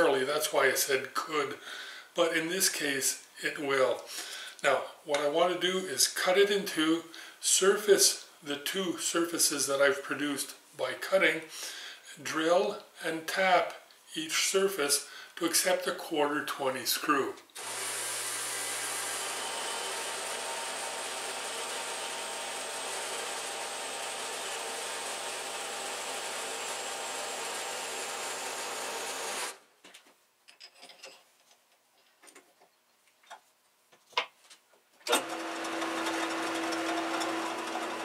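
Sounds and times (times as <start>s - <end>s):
metal lathe humming: 17.6s - 29.5s, 35.1s - 38.0s
bandsaw cutting metal: 17.6s - 29.6s, 35.1s - 38.0s.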